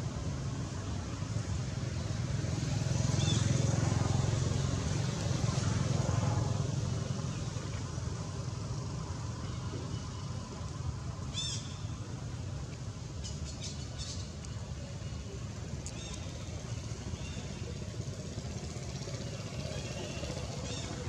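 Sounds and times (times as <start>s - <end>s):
motor traffic rumble: 0.0s - 21.0s.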